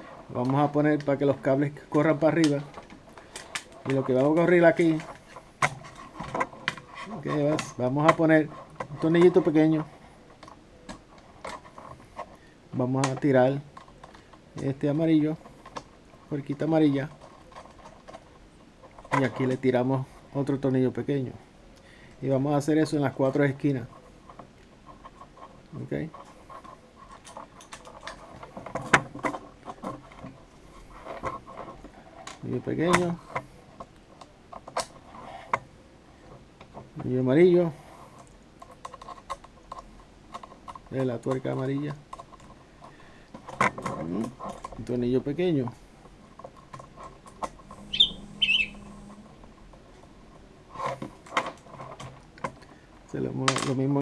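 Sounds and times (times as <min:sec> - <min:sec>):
small clicks and rattles of parts: 0:00.0 - 0:20.8, 0:21.8 - 0:47.9, 0:48.8 - 0:54.0
short high falling chirps: 0:47.8 - 0:49.0.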